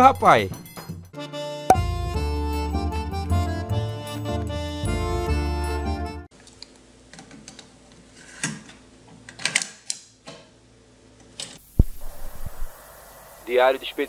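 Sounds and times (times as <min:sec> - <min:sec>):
accordion-led music: 0:01.2 - 0:06.3.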